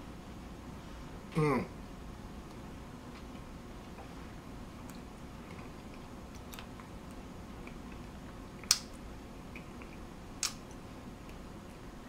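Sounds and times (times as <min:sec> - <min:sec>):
low room hum: 0:00.0 - 0:12.0
lip smacks and tongue clicks: 0:04.8 - 0:11.4.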